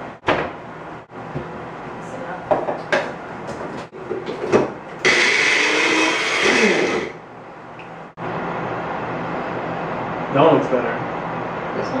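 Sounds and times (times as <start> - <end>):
blender chopping greens: 5.0 - 7.2.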